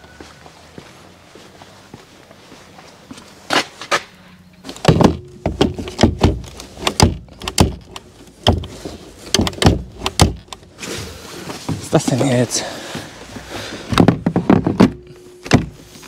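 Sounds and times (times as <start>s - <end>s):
loud knocks against metal: 4.8s - 10.5s.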